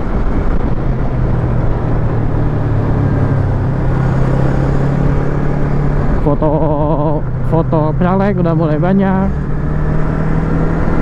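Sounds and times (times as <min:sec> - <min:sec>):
road and wind rumble: 0:00.0 - 0:11.0.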